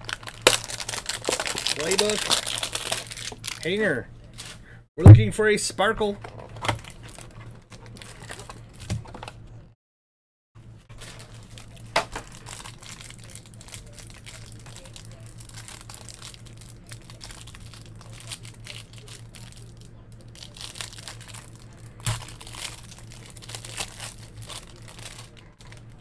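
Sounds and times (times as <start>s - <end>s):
plastic wrapper crinkling and tearing: 0.0s - 4.5s, 6.3s - 8.9s, 10.9s - 26.0s
steady low hum: 10.6s - 26.0s.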